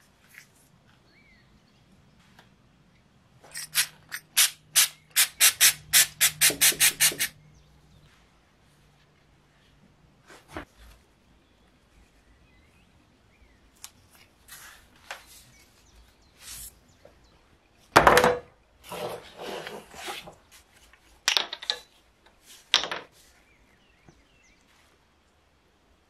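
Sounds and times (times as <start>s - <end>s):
tube scraping and clicking: 3.5s - 7.4s.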